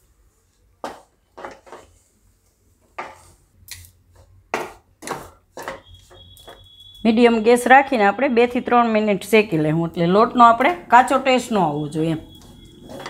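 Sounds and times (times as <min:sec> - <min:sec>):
spatula scraping in pan: 0:00.9 - 0:02.2, 0:02.8 - 0:03.5, 0:04.1 - 0:07.6, 0:11.0 - 0:13.0.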